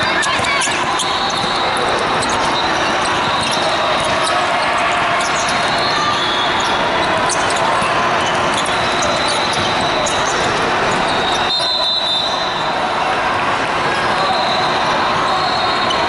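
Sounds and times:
din of crowded hall: 0.0s - 16.0s.

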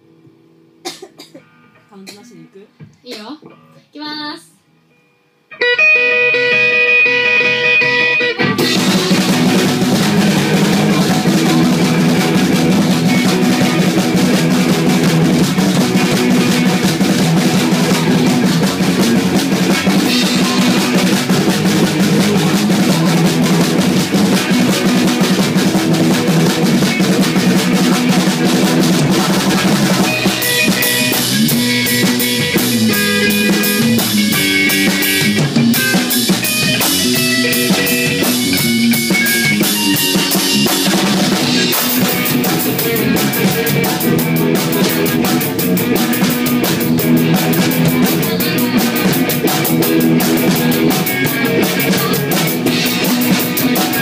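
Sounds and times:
rock band playing: 5.5s - 54.0s.

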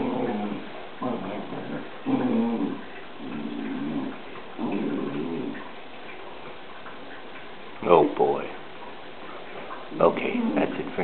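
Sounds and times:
dogs growling and whining: 0.0s - 5.8s.

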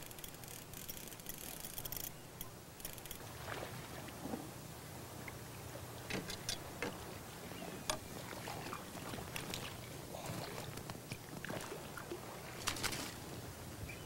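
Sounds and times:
lapping water: 7.6s - 13.0s
short sharp splashes and ticks: 7.9s - 9.8s, 10.6s - 13.2s.

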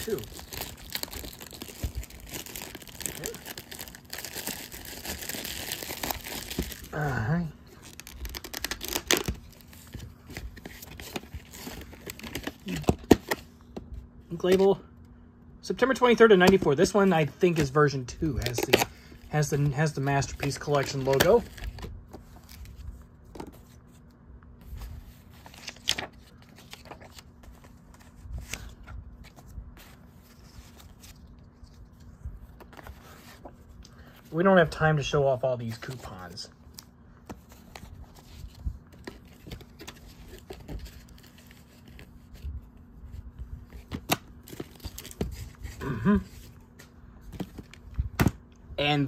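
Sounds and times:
paper rustling: 24.6s - 33.8s.

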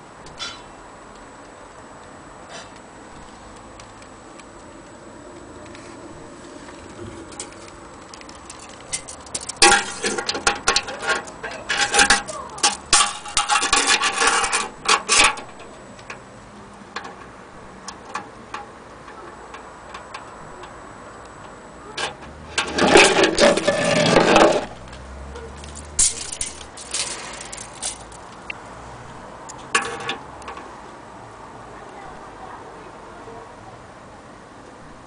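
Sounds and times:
rubbing and handling noise: 5.6s - 15.8s, 22.0s - 28.5s
tape measure clicking and rattling: 7.3s - 15.6s, 25.6s - 28.5s.

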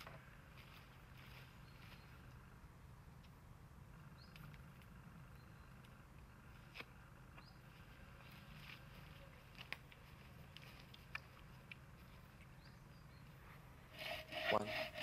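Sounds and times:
bow saw cutting wood: 13.9s - 15.0s.

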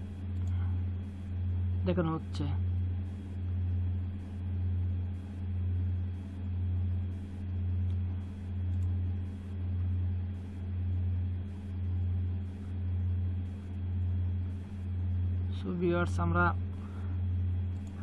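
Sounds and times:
pulsing low hum: 0.0s - 18.0s.

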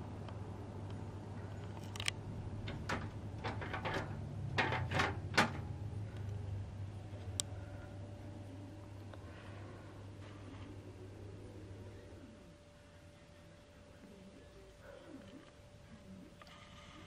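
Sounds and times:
low electric motor hum: 0.0s - 17.0s
plastic fan louvers clacking: 1.8s - 5.7s.

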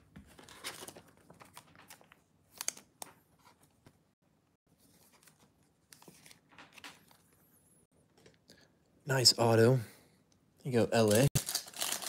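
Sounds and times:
trading cards and wrapper crinkling: 11.0s - 12.0s.

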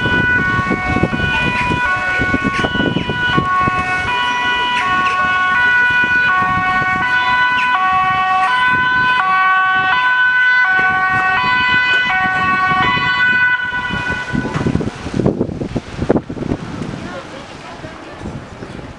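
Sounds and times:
ambulance two-tone siren: 0.0s - 14.9s.

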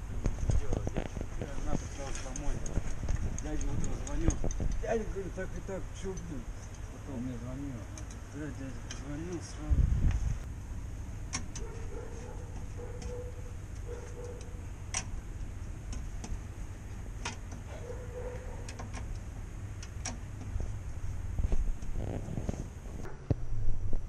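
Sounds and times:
steady low rumble: 7.8s - 24.0s.

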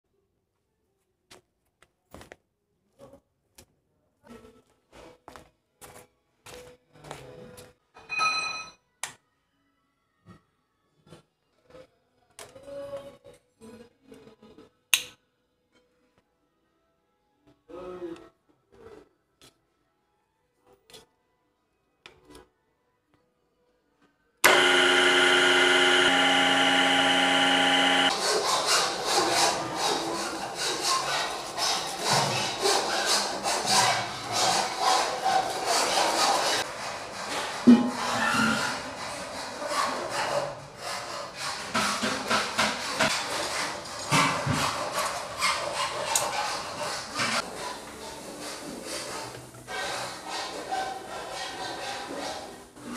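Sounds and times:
milling machine motor humming: 24.4s - 28.2s
metal rubbing and scraping: 24.5s - 52.9s.

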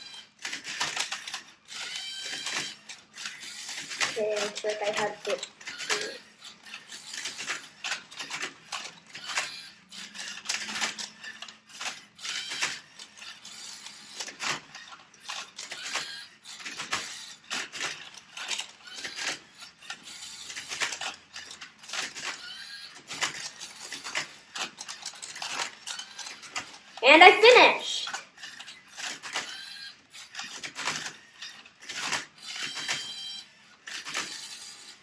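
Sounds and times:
robot motors whirring: 0.0s - 26.6s.

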